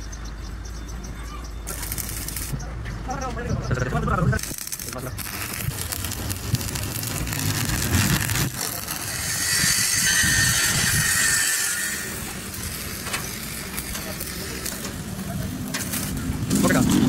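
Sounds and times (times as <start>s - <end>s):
welding arc crackling on steel: 1.6s - 2.8s, 3.8s - 17.0s
angle grinder grinding steel: 4.4s - 15.2s.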